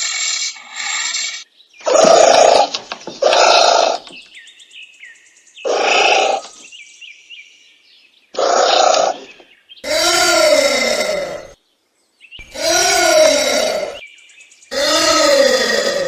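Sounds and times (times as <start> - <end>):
anteater raspy calls: 1.8 - 4.2, 5.6 - 6.6, 8.4 - 11.6, 12.4 - 14.0, 14.7 - 16.0.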